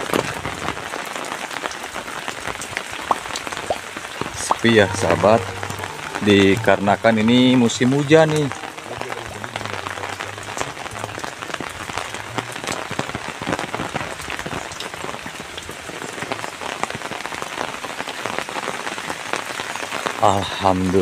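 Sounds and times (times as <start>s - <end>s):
steady rain falling: 0.0s - 21.0s.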